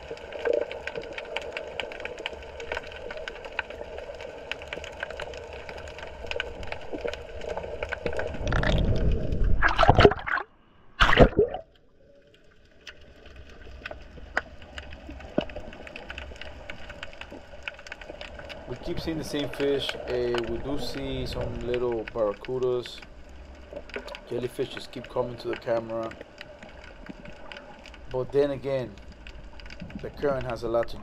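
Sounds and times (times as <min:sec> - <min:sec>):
small underwater clicks: 0:00.0 - 0:10.4, 0:11.0 - 0:31.0
water rushing and gurgling: 0:00.0 - 0:11.7, 0:13.1 - 0:31.0.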